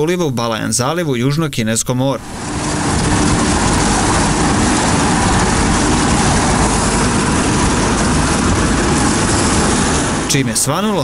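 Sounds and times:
wind and water rushing: 0:02.1 - 0:11.0
boat motor running: 0:02.2 - 0:11.0.

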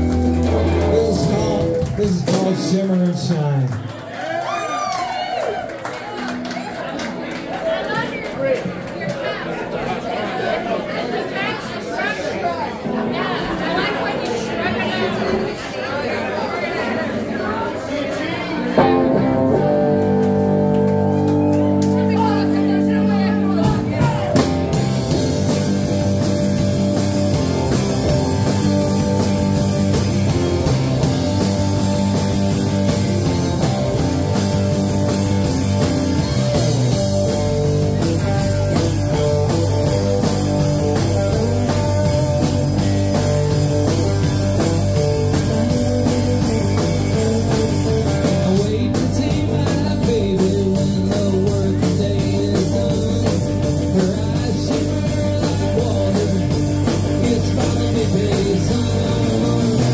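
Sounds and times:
live rock band playing: 0:00.0 - 0:03.8, 0:18.7 - 0:59.9.

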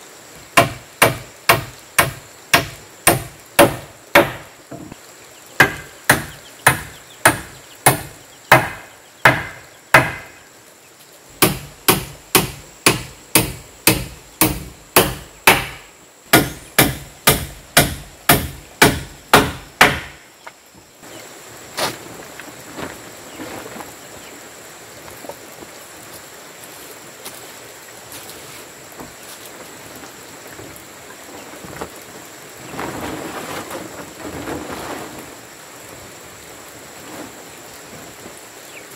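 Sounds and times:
hammer striking wooden rafters: 0:00.5 - 0:05.0, 0:05.6 - 0:10.4, 0:11.3 - 0:20.2
knocks of wood being handled: 0:00.5 - 0:05.0, 0:05.6 - 0:10.4, 0:11.4 - 0:20.9
plastic tarp rustling: 0:21.7 - 0:24.3, 0:28.1 - 0:36.1, 0:36.7 - 0:38.4.

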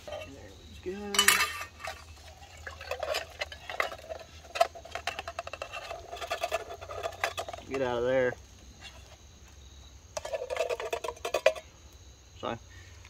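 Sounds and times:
beans clinking in metal cup: 0:00.0 - 0:08.0, 0:10.2 - 0:11.6.

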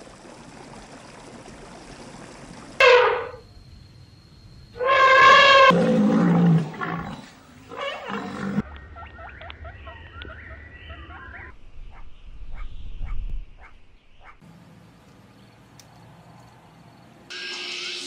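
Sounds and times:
elephant trumpeting: 0:02.8 - 0:03.4, 0:04.8 - 0:08.6.

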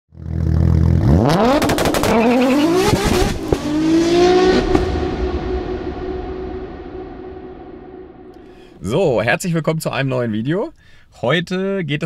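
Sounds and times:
car engine revving: 0:00.2 - 0:08.3.

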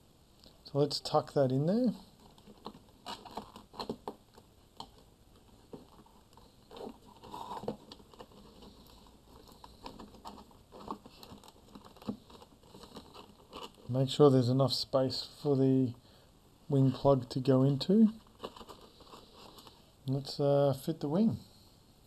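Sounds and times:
faint clicks rustles and scrapes: 0:01.6 - 0:14.4, 0:16.7 - 0:19.9.

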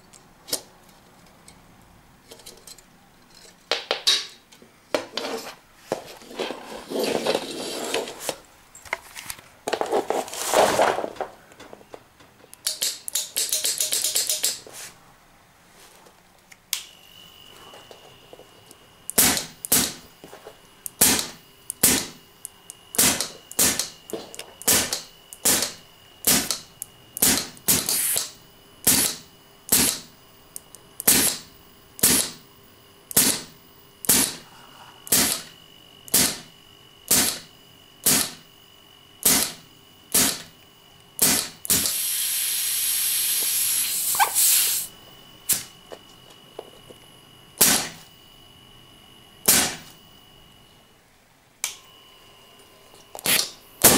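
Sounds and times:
airgun valve firing: 0:19.1 - 0:20.0, 0:20.9 - 0:22.2, 0:23.0 - 0:23.9, 0:24.6 - 0:26.6, 0:27.2 - 0:30.0, 0:31.0 - 0:32.4, 0:33.1 - 0:34.4, 0:35.1 - 0:35.5, 0:36.1 - 0:36.4, 0:37.1 - 0:37.4, 0:38.0 - 0:38.4, 0:39.2 - 0:40.5, 0:41.2 - 0:44.9, 0:47.6 - 0:48.0, 0:49.5 - 0:49.8
escaping air hissing: 0:27.9 - 0:28.3, 0:41.8 - 0:45.0.

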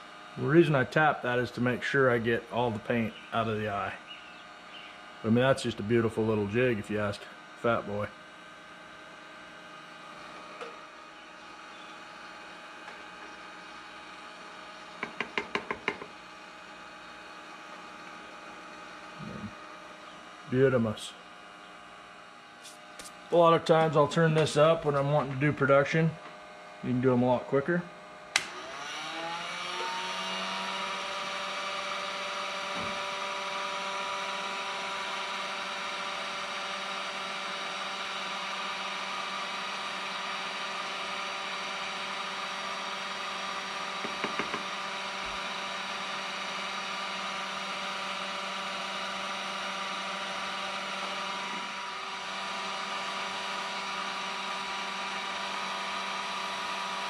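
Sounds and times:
heat gun fan motor running: 0:00.0 - 0:57.0
heat gun switch click: 0:28.3 - 0:28.6.

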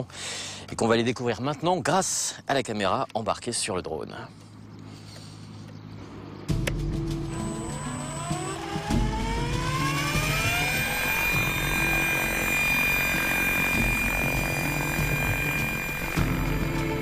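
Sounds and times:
model helicopter motor whine: 0:07.2 - 0:17.0.

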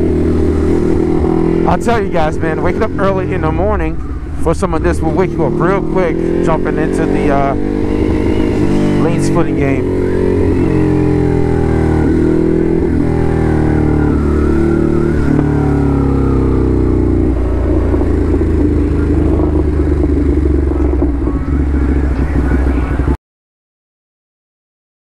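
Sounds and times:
motorcycle engine at speed: 0:00.0 - 0:23.2.

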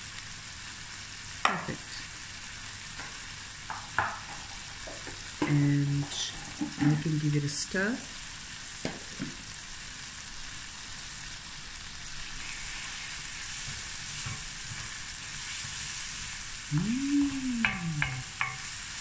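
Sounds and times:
spices sizzling in oil: 0:00.0 - 0:19.0
wooden spoon stirring: 0:03.7 - 0:07.1
person humming: 0:16.7 - 0:18.3
spoon ticking against pan: 0:17.5 - 0:18.6.

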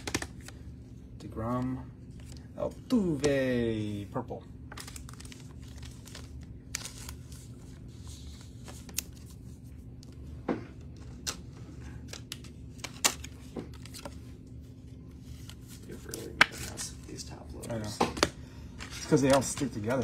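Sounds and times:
low steady hum: 0:00.0 - 0:20.0
cards and plastic clicking: 0:10.8 - 0:14.2, 0:17.6 - 0:20.0.

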